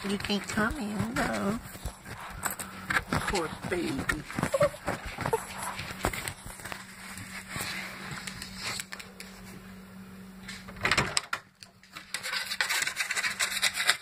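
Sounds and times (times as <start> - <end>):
scratching and rubbing on wood: 0.0 - 8.9, 12.1 - 14.0.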